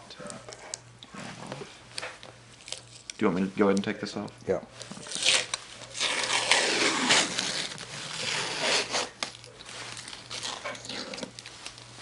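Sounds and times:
low steady hum: 0.0 - 12.0
plastic film crinkling and tearing: 2.6 - 3.7, 4.8 - 12.0.

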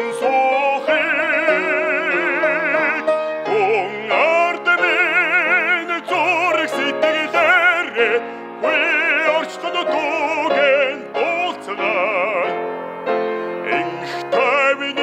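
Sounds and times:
grand piano: 0.0 - 15.0
man singing with vibrato: 0.0 - 15.0.

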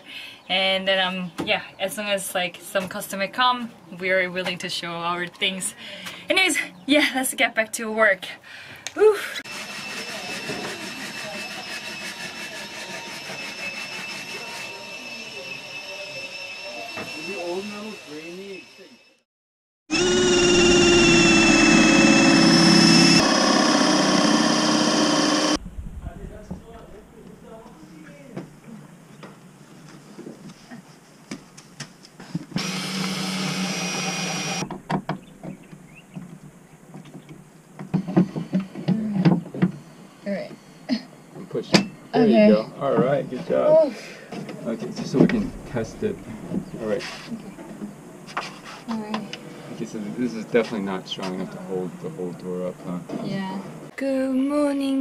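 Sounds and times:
power tool high whine: 9.4 - 19.2, 19.9 - 25.6, 32.6 - 34.8, 44.4 - 47.3
cordless drill driving screw: 19.9 - 25.6, 32.6 - 34.6.

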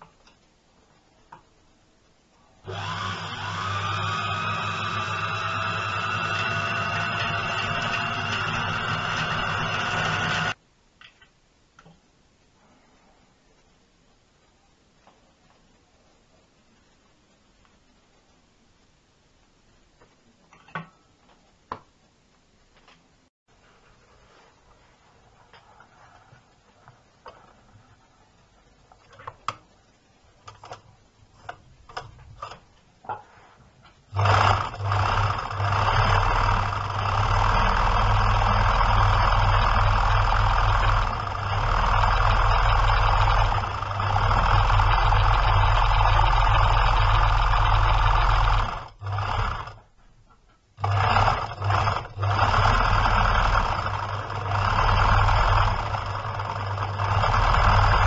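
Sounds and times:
sewing machine running: 2.7 - 10.6, 34.1 - 49.8, 50.8 - 58.0.

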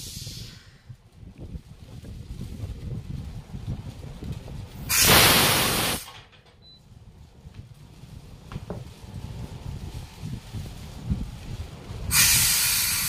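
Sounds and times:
compressed air hissing: 0.0 - 0.9, 4.8 - 6.1, 12.0 - 13.0.

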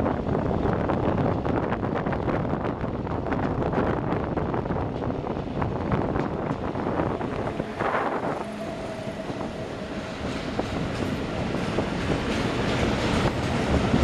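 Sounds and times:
moving train running noise: 0.0 - 14.0
wind buffeting microphone: 0.0 - 14.0
train wheels clattering: 4.8 - 14.0.

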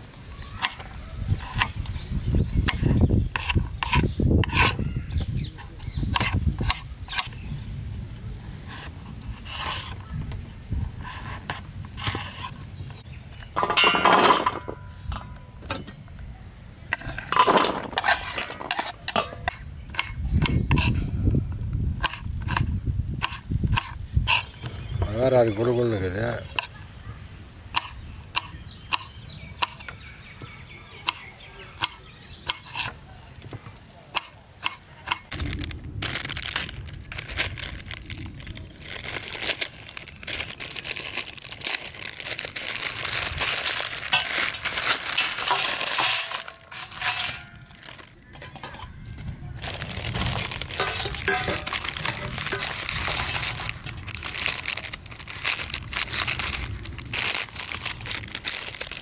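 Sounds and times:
plastic packets crinkling and tearing: 35.3 - 59.0.

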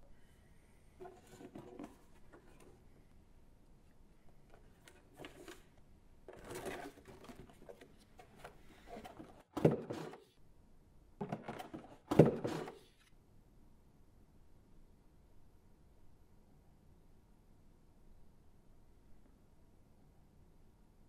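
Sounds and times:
cardboard and plastic packaging rustling: 4.5 - 10.2.

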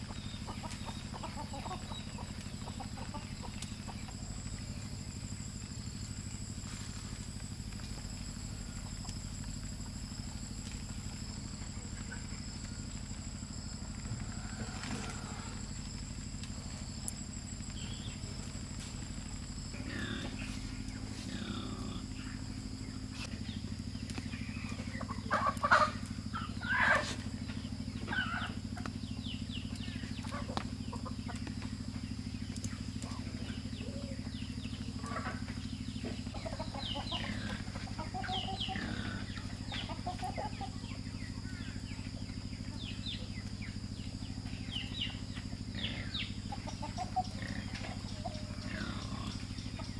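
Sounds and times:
chickens clucking: 0.0 - 5.4, 17.7 - 49.9
steady low hum: 0.0 - 49.9.

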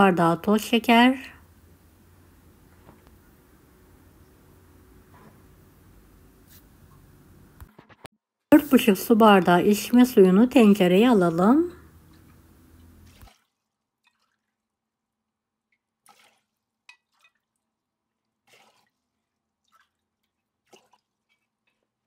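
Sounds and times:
water pouring into metal pot: 13.1 - 14.7, 18.3 - 22.0.

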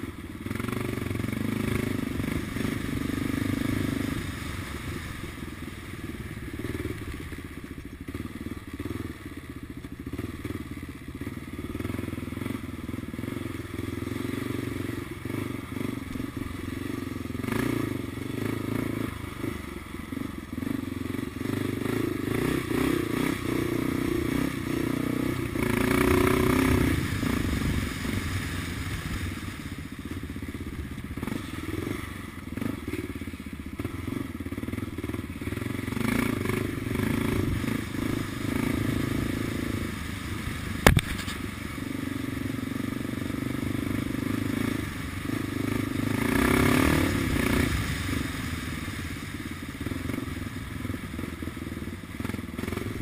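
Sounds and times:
motorcycle engine running: 0.0 - 53.0
bike knocks and clatter: 40.8 - 41.4.

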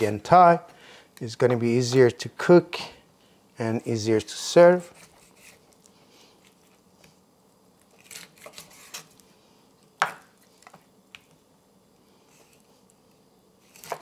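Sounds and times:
knife cutting on wooden board: 13.7 - 14.0.

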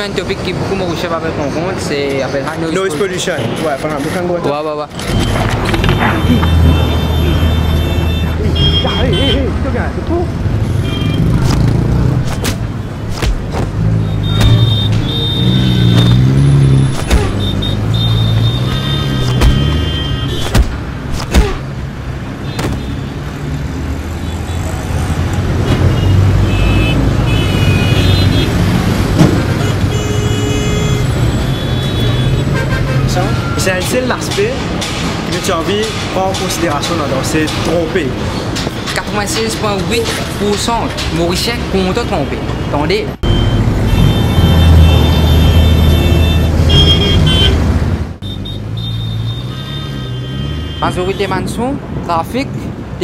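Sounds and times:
rumble of passing vehicles: 0.0 - 53.0
car horns: 2.2 - 9.6, 10.4 - 13.0, 13.8 - 23.4, 24.1 - 34.1, 41.3 - 51.7.

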